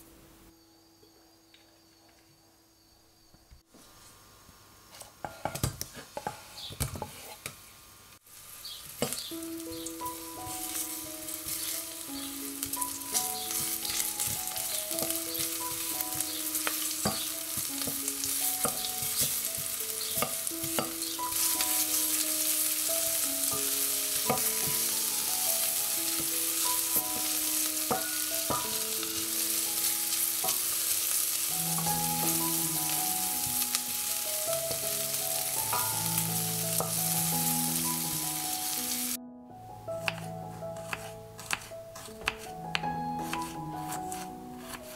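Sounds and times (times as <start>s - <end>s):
onions sizzling in hot oil: 8.2s - 39.2s
wooden spoon scraping a pot: 40.1s - 42.5s.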